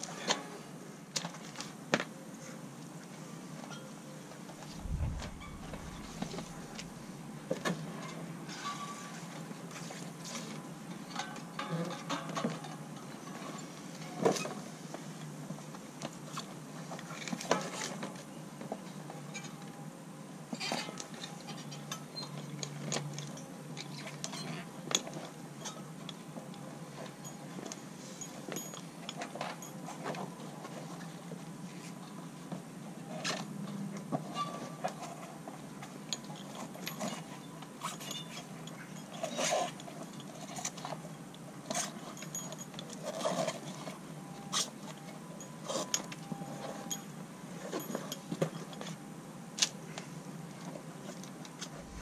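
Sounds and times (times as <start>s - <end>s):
steady low hum: 4.6s - 7.5s, 51.7s - 52.0s.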